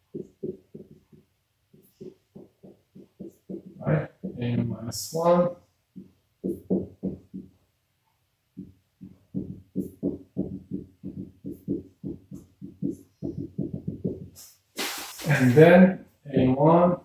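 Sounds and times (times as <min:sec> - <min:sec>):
marker writing on whiteboard: 0:00.0 - 0:04.5, 0:06.0 - 0:07.6, 0:08.6 - 0:14.6.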